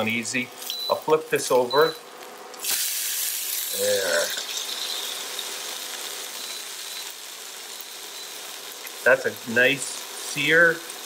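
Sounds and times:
fish sizzling in a frying pan: 0:02.2 - 0:11.0.

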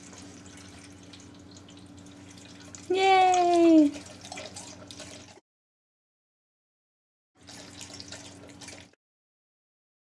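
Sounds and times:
fountain pump humming: 0:00.0 - 0:05.4.

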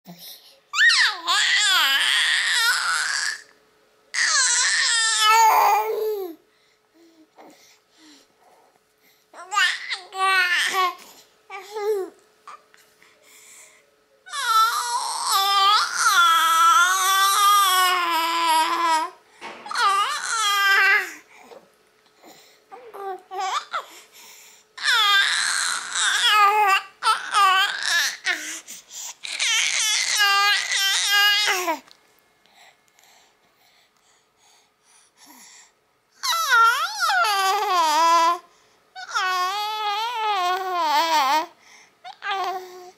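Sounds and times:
baby babbling: 0:04.2 - 0:06.4, 0:09.4 - 0:12.7, 0:14.3 - 0:21.6, 0:22.7 - 0:23.9, 0:24.8 - 0:28.6, 0:29.2 - 0:31.8, 0:36.2 - 0:38.4, 0:39.0 - 0:41.5, 0:42.1 - 0:42.9.

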